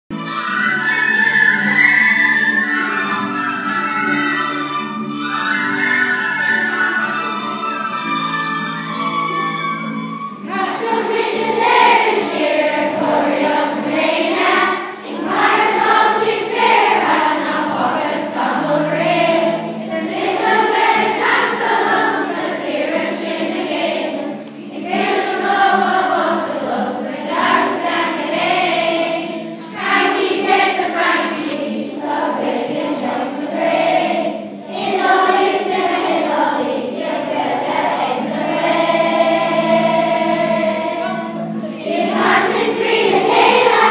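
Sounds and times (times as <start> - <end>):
children's choir singing: 0.1 - 43.9
instrumental backing music: 0.1 - 43.9.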